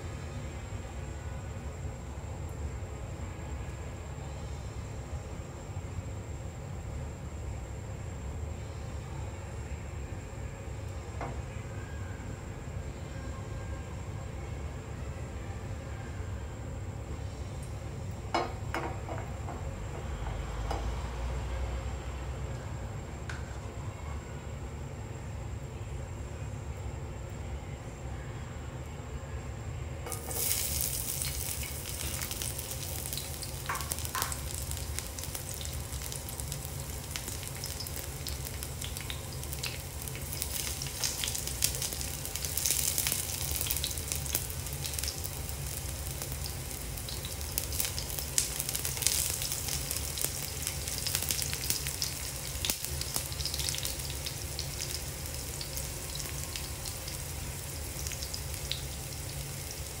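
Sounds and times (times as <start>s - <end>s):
garlic sizzling in hot oil: 30.0s - 60.0s.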